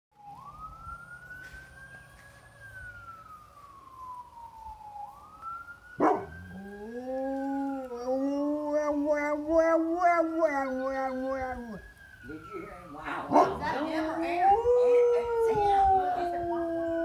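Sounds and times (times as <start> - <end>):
ambulance siren wailing: 0.1 - 17.0
dog howling: 6.0 - 11.9, 13.0 - 17.0.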